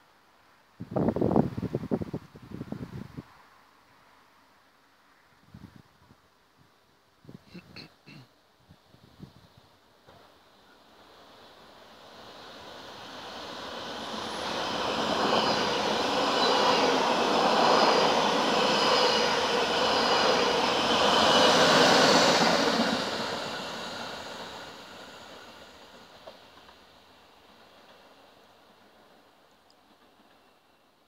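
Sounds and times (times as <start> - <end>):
train wheels rumbling on rails: 11.0 - 30.9.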